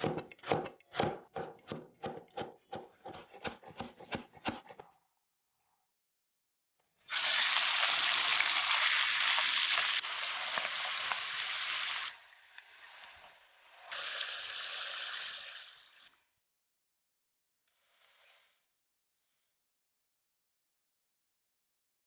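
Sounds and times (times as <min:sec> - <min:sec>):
meat sizzling in hot oil: 0:07.1 - 0:12.1.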